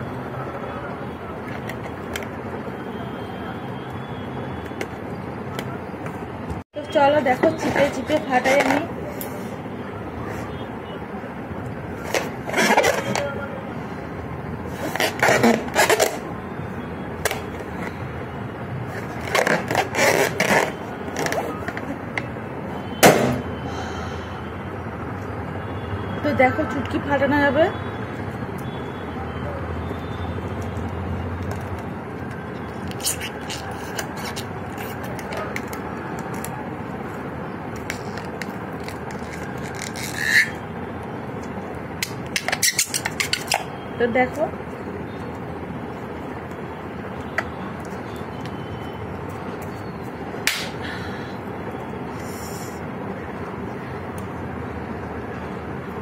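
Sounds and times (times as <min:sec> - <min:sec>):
steady background noise: 0:00.0 - 0:56.0
rubber balloon squeaking: 0:12.0 - 0:13.3, 0:14.7 - 0:16.3, 0:19.0 - 0:21.8, 0:32.8 - 0:35.5, 0:38.0 - 0:40.7
balloon rubber clicks and creaks: 0:19.0 - 0:22.3, 0:37.8 - 0:40.6.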